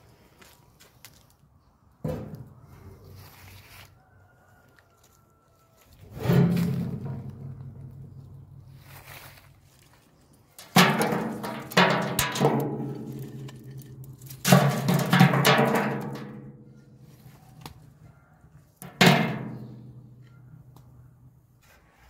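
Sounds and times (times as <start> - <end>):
metal box ringing: 10.6 - 16.5
wood chips clattering on steel: 10.6 - 16.5.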